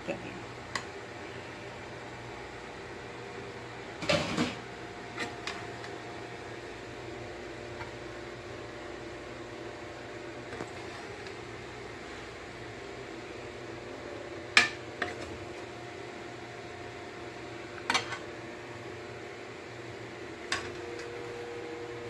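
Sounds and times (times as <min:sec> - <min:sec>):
steady background hum: 0:00.0 - 0:22.0.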